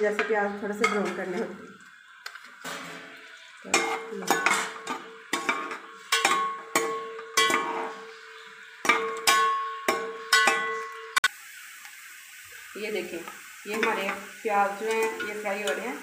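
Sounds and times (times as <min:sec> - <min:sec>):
onions sizzling in oil: 0:00.0 - 0:16.0
metal spoon clanking in pot: 0:00.1 - 0:01.5, 0:02.2 - 0:11.2.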